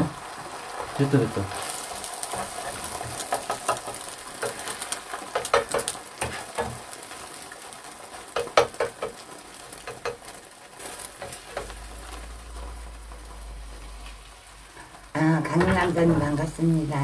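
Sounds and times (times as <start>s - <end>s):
egg sizzling in frying pan: 0.0s - 17.0s
utensils tapping and scraping pan: 2.2s - 7.1s, 8.1s - 12.1s, 14.7s - 16.6s.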